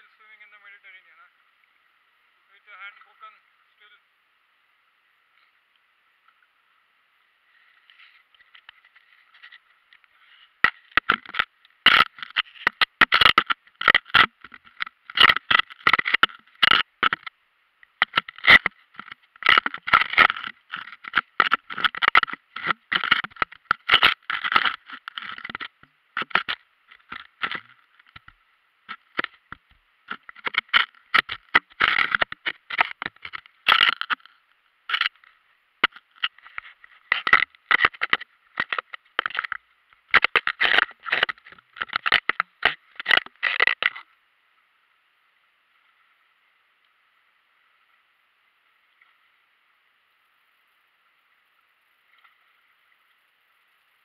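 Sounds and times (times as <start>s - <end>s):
camera case scraping and knocking: 10.6s - 17.3s, 18.0s - 28.3s, 28.9s - 34.3s, 35.8s - 44.0s.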